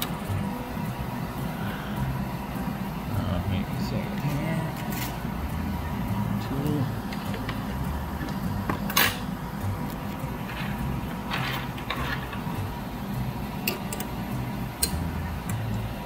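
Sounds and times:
turntable mechanism scrape: 10.3s - 12.5s.

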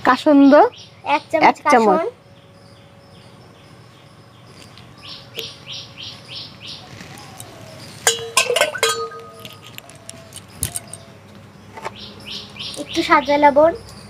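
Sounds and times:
small birds chirping: 0.0s - 14.0s
spoon clinking on steel bowl: 8.0s - 9.7s.

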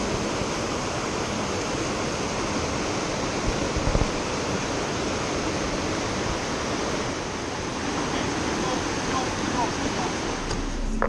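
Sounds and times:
river rushing over boulders: 0.0s - 10.8s.

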